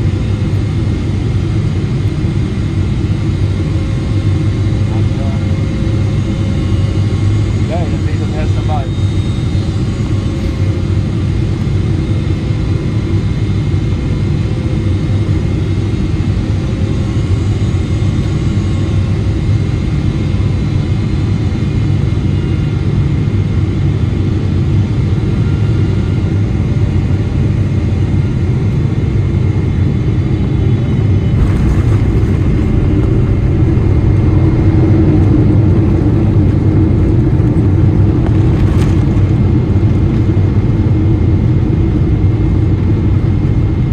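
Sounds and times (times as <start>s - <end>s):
faint steady whine tones: 0.0s - 12.5s
jet engine and rushing air rumble: 0.0s - 43.9s.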